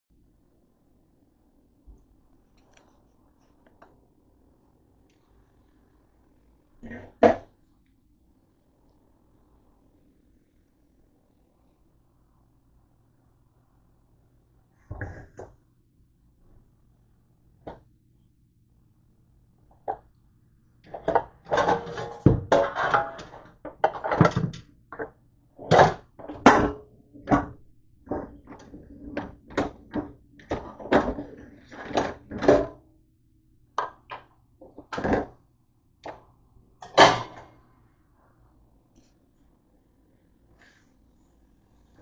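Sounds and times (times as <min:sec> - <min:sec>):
kitchenware clattering: 0:20.9 - 0:24.6, 0:28.1 - 0:32.8, 0:36.8 - 0:37.4.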